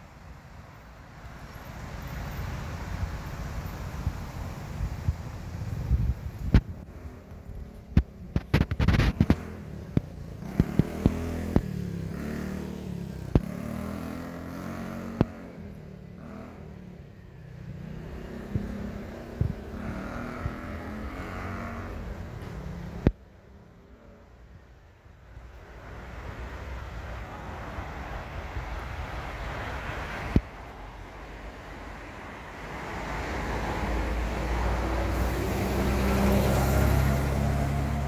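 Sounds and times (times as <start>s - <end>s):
vehicle engine rumble: 0.0s - 38.0s.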